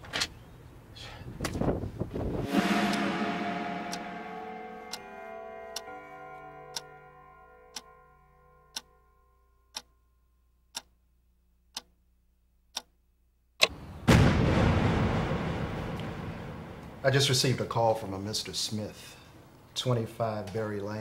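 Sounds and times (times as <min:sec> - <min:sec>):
loud rushing noise: 0:02.4 - 0:05.2
sharp knock: 0:02.4 - 0:05.2
background music held notes: 0:02.4 - 0:09.6
clock ticking: 0:04.8 - 0:09.0, 0:09.7 - 0:09.9, 0:10.7 - 0:11.0, 0:11.7 - 0:12.0, 0:12.7 - 0:13.0.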